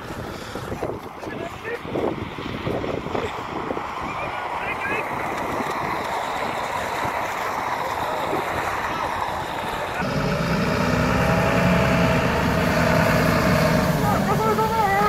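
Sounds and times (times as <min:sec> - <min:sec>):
wind on microphone: 0:00.0 - 0:15.0
truck engine idling: 0:05.7 - 0:15.0.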